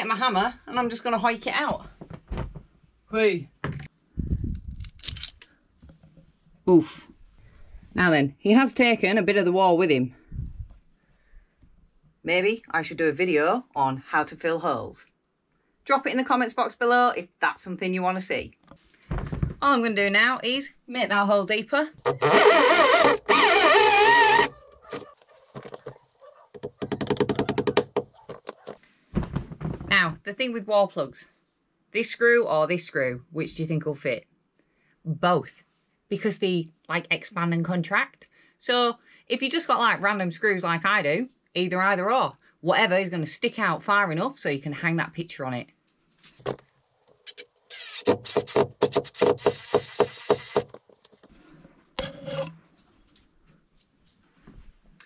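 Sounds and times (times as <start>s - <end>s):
hammer drill boring into brick: 22.0s - 25.0s, 47.2s - 50.8s
screw knocking into wall plug: 26.6s - 28.6s.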